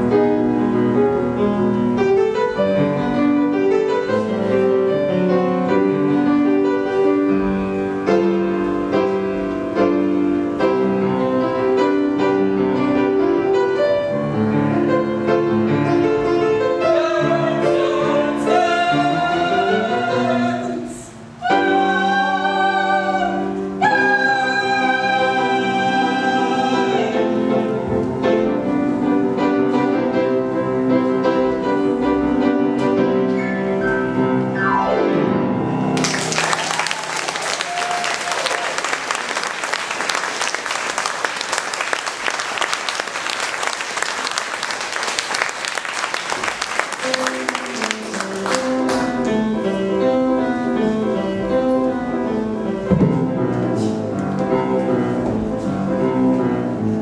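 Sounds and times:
piano-accompanied music: 0.0 - 36.6, 43.4 - 57.0
piano playing: 0.0 - 57.0
audience applauding: 36.0 - 49.4.

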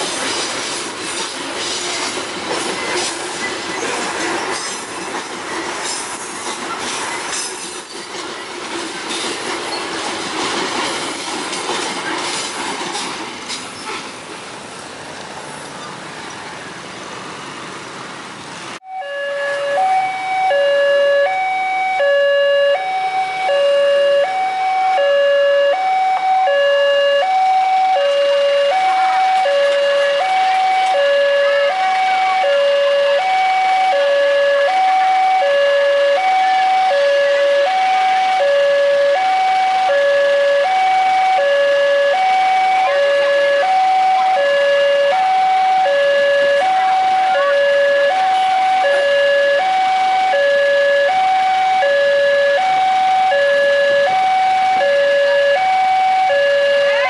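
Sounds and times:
level crossing two-tone alarm: 18.8 - 57.0.

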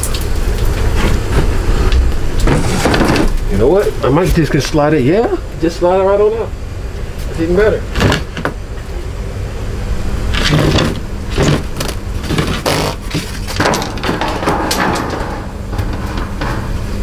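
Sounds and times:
ceiling panel scraping against wood: 0.8 - 3.4.

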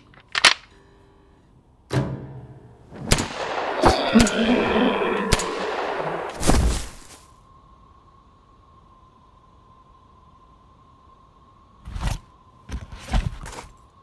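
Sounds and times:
pistol gunshots: 3.0 - 4.4, 5.2 - 6.4.

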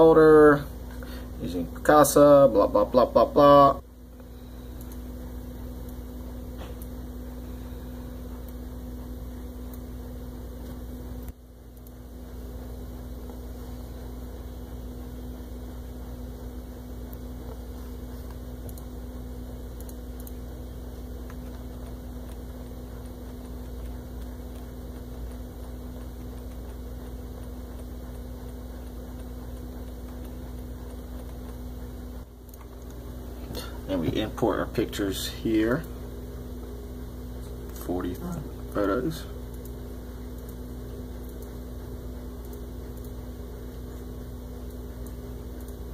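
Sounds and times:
steady electrical hum: 0.0 - 45.9.

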